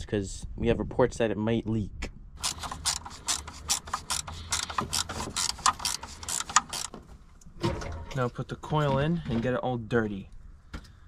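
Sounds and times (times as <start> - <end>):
ratchet wrench clicking: 2.4 - 7.0.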